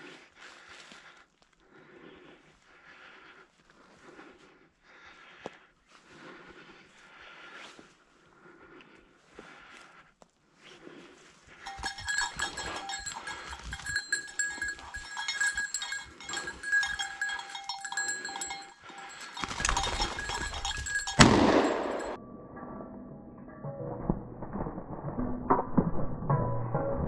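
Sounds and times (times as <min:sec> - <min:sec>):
dog collar bell jangling: 0:11.6 - 0:22.2.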